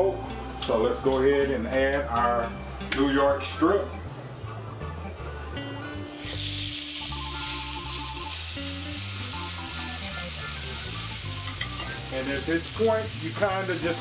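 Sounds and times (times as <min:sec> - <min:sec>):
steak sizzling in a pan: 0:06.2 - 0:14.0.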